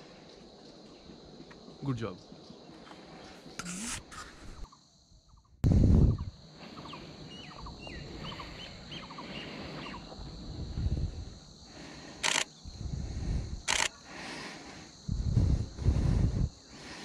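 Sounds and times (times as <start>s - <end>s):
camera shutter bursts: 3.6s - 4.2s, 12.2s - 12.5s, 13.7s - 14.0s
small birds calling: 6.2s - 10.2s.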